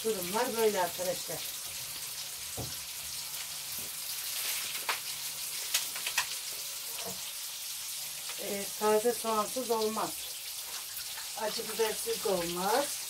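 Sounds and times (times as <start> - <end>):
food sizzling in frying pan: 0.0 - 13.0
sharp crackling pops: 4.6 - 6.5.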